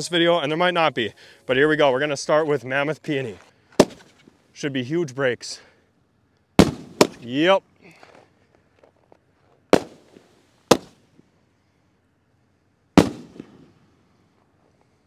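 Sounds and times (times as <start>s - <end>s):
firework bangs with echo: 6.6s - 7.3s, 9.8s - 11.0s, 13.0s - 13.8s.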